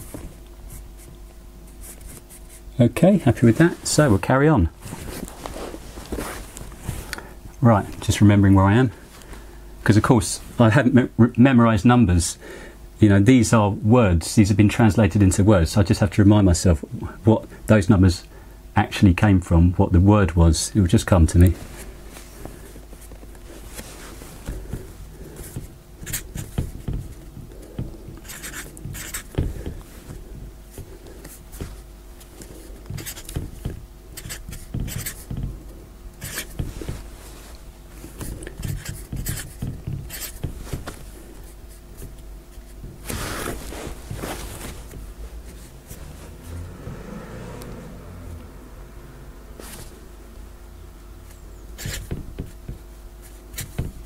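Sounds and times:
faint steady hum: 0.0s - 54.0s
marker scratching on board: 24.4s - 31.8s, 32.8s - 35.5s, 36.2s - 37.0s, 38.1s - 44.2s, 51.8s - 54.0s.

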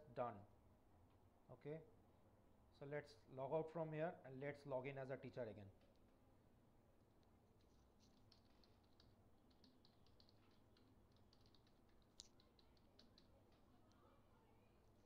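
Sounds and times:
keyboard typing: 7.6s - 14.1s.

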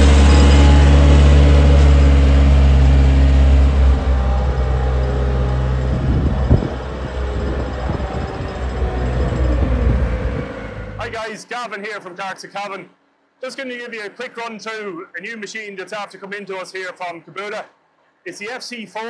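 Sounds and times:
mower rolling over gravel: 0.0s - 10.3s
diesel mower engine running: 0.0s - 11.2s.

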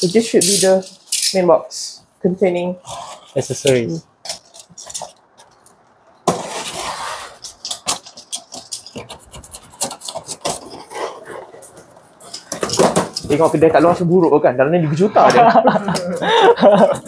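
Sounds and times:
box packing rustling and scraping: 6.2s - 14.2s.

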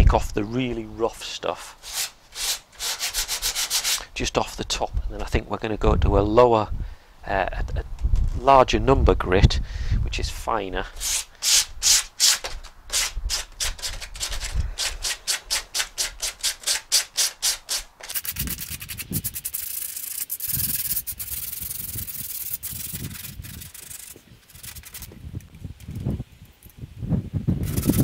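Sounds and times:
sandpaper scrubbing: 1.7s - 4.1s, 11.0s - 25.2s, 27.6s - 28.0s.

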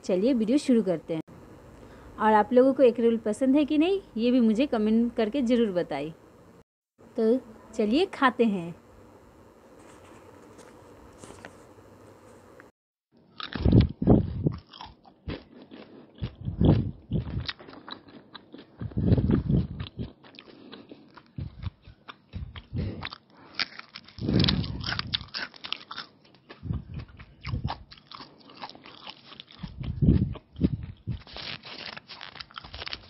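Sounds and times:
crunchy biting and chewing: 13.3s - 33.0s.

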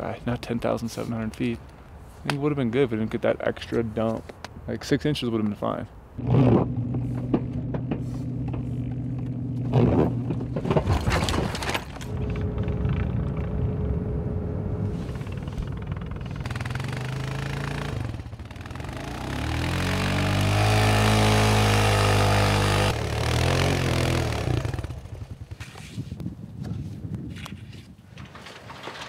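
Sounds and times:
atv engine revving: 6.2s - 11.0s, 12.0s - 25.4s
engine humming: 6.2s - 25.5s
wheels spinning in snow: 6.2s - 26.2s.

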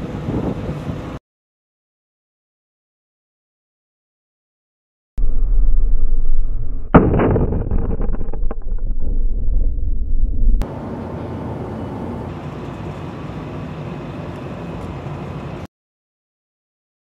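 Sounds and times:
sharp cracks: 6.2s - 10.6s.

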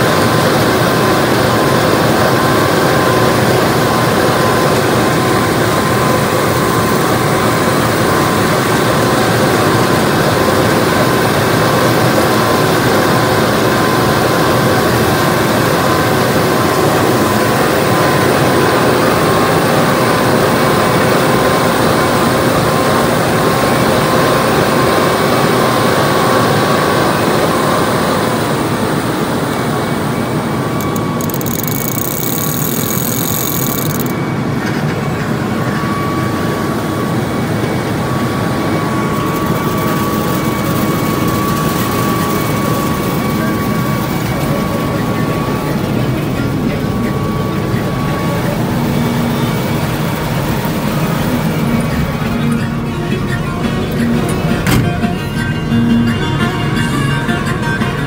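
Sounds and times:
harvester machine drone: 13.4s - 58.0s
machine whining tones: 30.1s - 34.8s, 37.9s - 57.8s.

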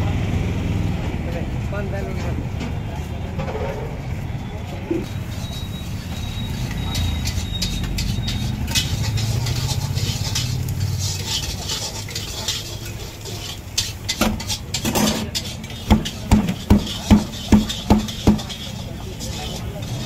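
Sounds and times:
low rumble of passing traffic: 0.0s - 20.0s
metal spatula scraping on iron pan: 5.0s - 20.0s.

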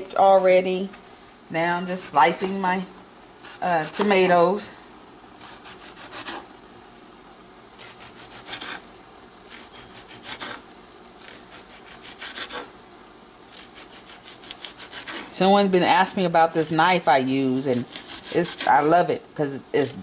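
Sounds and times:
knife sawing through tomato: 5.4s - 6.5s, 7.8s - 8.8s, 9.5s - 10.6s, 11.2s - 12.7s, 13.5s - 15.4s, 16.9s - 18.8s.

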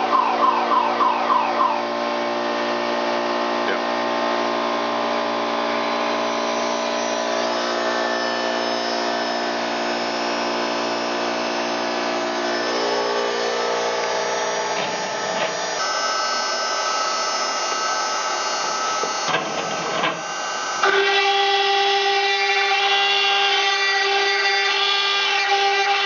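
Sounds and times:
router spindle whining: 0.0s - 26.0s
gantry motors: 6.0s - 26.0s.

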